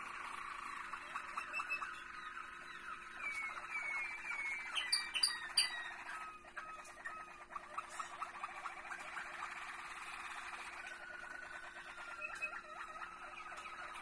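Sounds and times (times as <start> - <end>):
canaries singing trills: 0.0 - 14.0.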